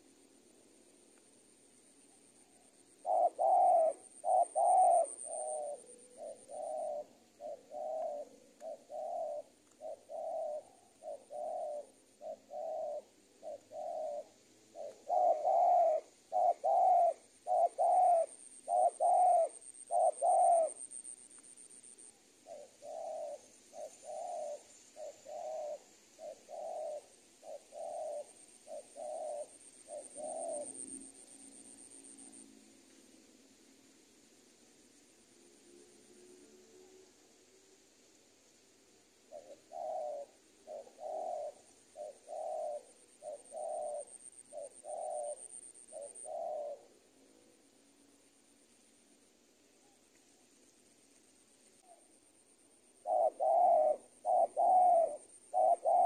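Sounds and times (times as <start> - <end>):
dove cooing: 2.3 - 21.1, 21.8 - 32.4, 39.3 - 47.0, 53.0 - 56.0.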